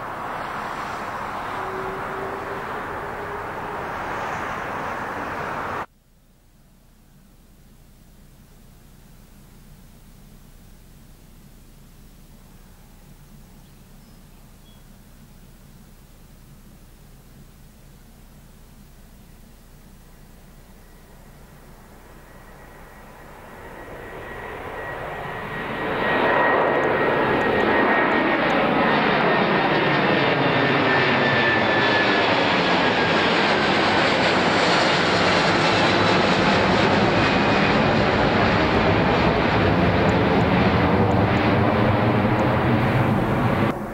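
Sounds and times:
jet engines passing overhead: 0.0s - 5.9s, 20.0s - 43.9s
high engine whine: 0.0s - 43.9s.

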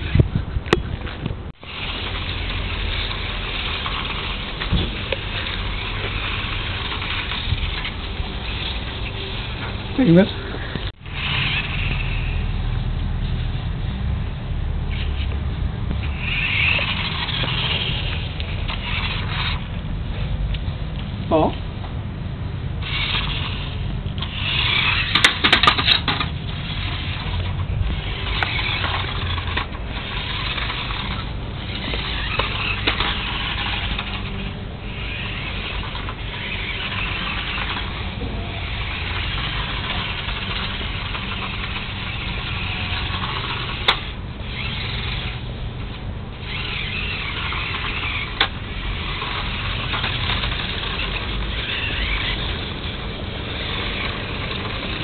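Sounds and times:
toy truck motor whirring: 1.6s - 12.9s, 14.8s - 19.8s, 22.8s - 55.0s
rattle of clicks: 22.8s - 38.2s, 38.8s - 55.0s.

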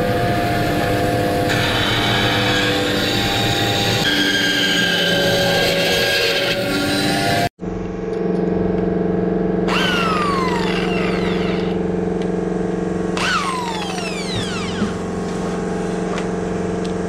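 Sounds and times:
steady machine hum: 7.6s - 17.0s
electric drill spinning: 9.7s - 11.8s, 13.2s - 15.2s.

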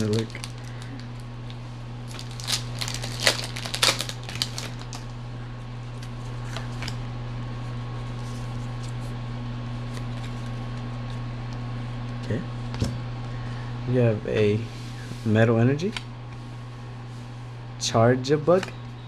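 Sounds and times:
foil wrapper crinkling and tearing: 0.0s - 5.2s
steady low hum: 0.0s - 19.0s.

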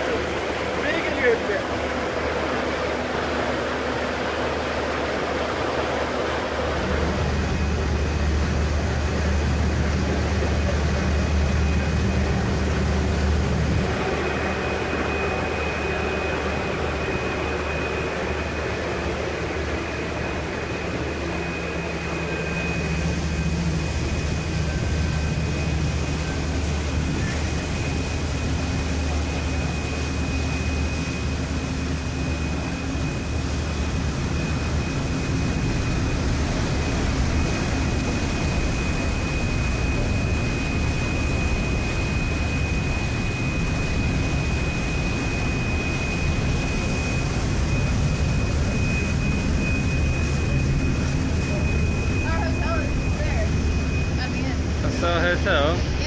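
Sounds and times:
churning wake rushing: 0.0s - 56.0s
ferry engine droning: 0.0s - 56.0s
high whine: 0.0s - 56.0s
wind: 0.0s - 56.0s.

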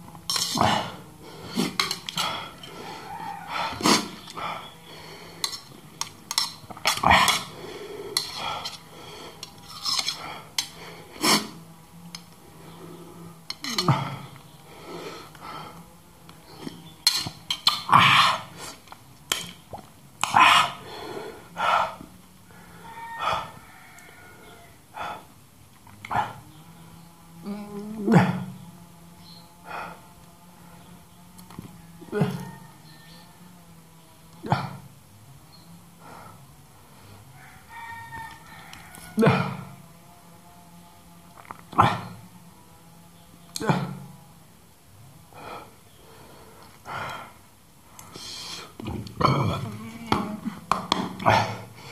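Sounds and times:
metal spoon scraping steel plate: 0.3s - 0.6s, 1.6s - 2.8s, 5.4s - 10.8s, 17.0s - 17.9s
loud breathing: 0.3s - 11.7s, 12.4s - 16.9s, 20.2s - 25.4s, 29.6s - 31.0s, 35.9s - 37.4s, 45.3s - 48.8s, 51.2s - 51.9s.

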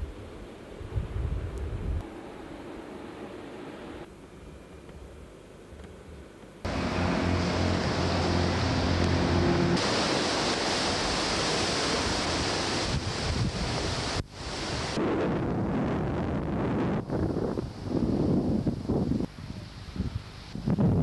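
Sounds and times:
low hum: 0.0s - 11.0s
wind on microphone: 0.8s - 2.0s, 11.9s - 21.0s
waves washing onto beach: 6.7s - 15.0s.

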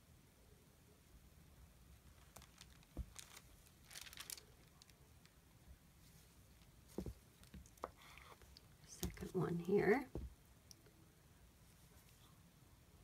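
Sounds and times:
soft knock: 6.9s - 7.2s, 10.1s - 10.4s
soft thump: 6.9s - 7.2s, 10.1s - 10.4s.

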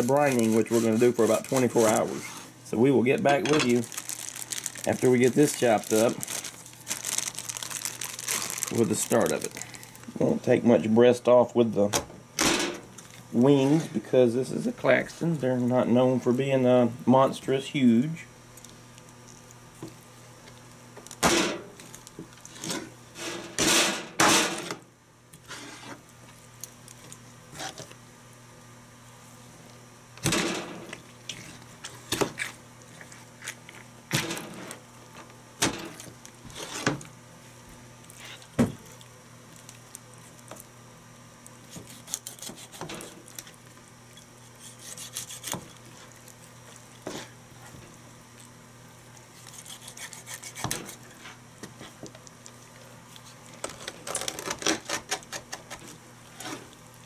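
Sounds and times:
cutting and handling sounds: 0.0s - 2.4s, 3.6s - 9.8s, 41.6s - 47.8s, 49.2s - 56.8s.

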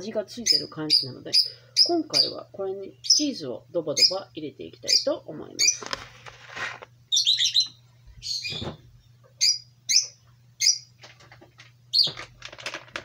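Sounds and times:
small bird chirping: 0.4s - 5.9s, 7.1s - 10.9s, 11.9s - 12.2s.

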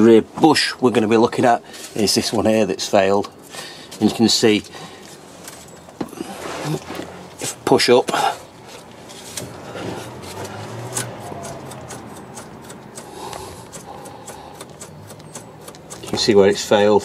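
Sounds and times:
faint rubbing and scraping: 5.0s - 14.8s.

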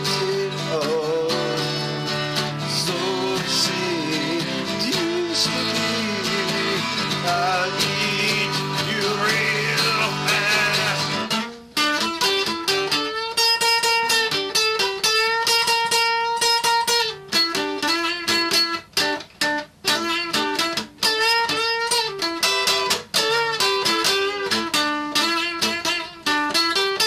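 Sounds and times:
man singing: 0.0s - 11.4s
acoustic guitar strumming: 0.0s - 27.0s
guitar solo plucked notes: 0.0s - 27.0s.

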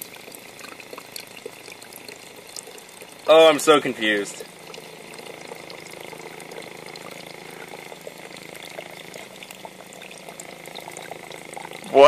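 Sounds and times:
water stream splashing: 0.0s - 12.0s.

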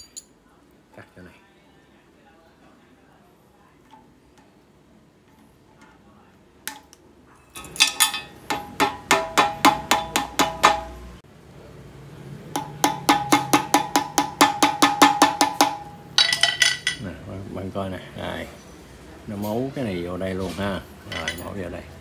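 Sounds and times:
hammer tapping on metal: 7.9s - 11.1s, 12.6s - 17.0s.

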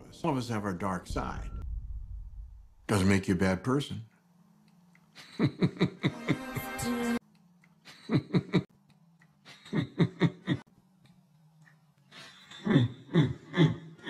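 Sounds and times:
low steady hum: 0.0s - 5.9s.

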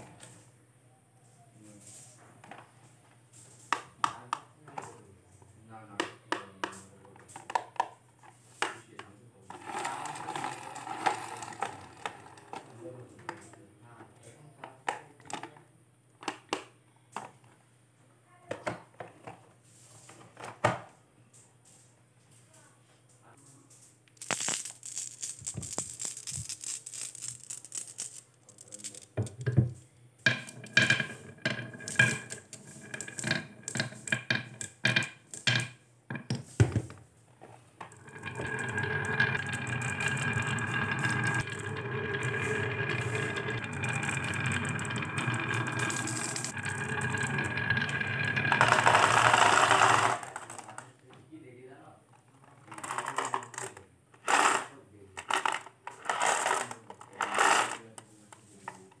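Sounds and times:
marbles clicking on wooden track: 9.5s - 12.7s, 24.2s - 29.6s, 30.3s - 36.4s, 37.8s - 50.9s
marbles clattering into plastic truck: 9.5s - 12.8s, 24.1s - 36.5s, 37.8s - 50.9s, 52.6s - 57.9s
marbles rolling down wooden slope: 9.5s - 12.9s, 24.2s - 29.6s, 30.3s - 36.4s, 37.8s - 50.9s, 55.3s - 57.8s.

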